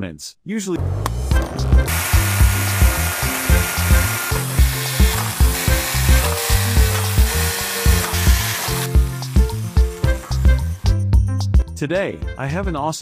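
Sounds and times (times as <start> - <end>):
music with beat and bass: 1.2 - 11.7
electric drill on metal: 1.9 - 11.0.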